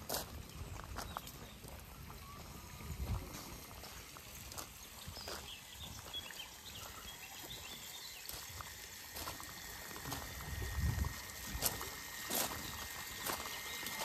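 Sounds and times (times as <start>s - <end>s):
footsteps on gravel: 0.0s - 14.0s
fountain water splashing: 0.0s - 14.0s
birds chirping: 0.1s - 8.8s, 11.6s - 14.0s.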